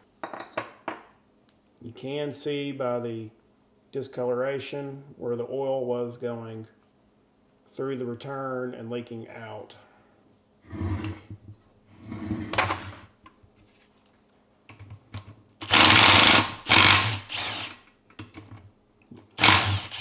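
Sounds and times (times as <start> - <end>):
impact driver hammering bolts: 15.6 - 17.8, 19.4 - 20.0.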